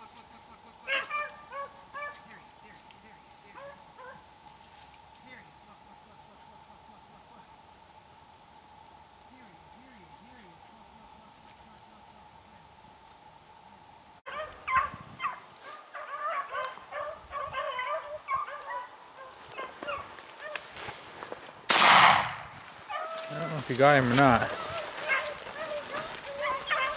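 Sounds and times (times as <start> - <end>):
dogs baying and yelping: 0.0 - 2.4, 3.5 - 4.4, 14.3 - 20.8, 22.8 - 26.9
crickets chirping: 0.0 - 26.9.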